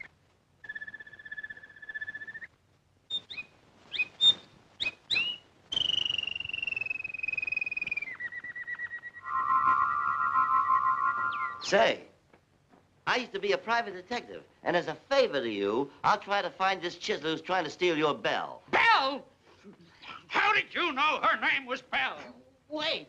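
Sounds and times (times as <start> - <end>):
whistled bird-like chirps and trills: 0.0 - 2.5, 3.1 - 11.7.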